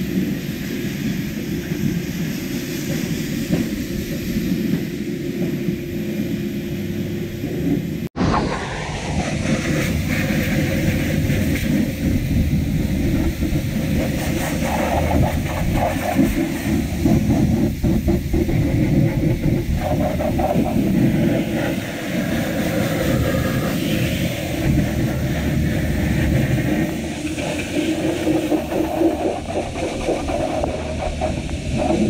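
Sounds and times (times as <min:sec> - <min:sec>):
pressure washer water jet: 0:08.2 - 0:32.0.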